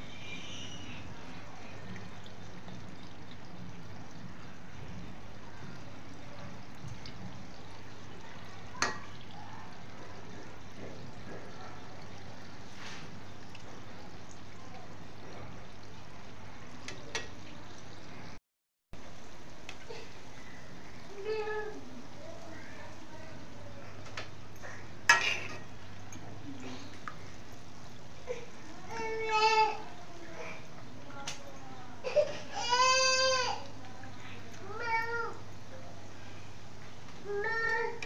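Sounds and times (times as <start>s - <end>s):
food sizzling in hot oil: 19.0s - 32.0s.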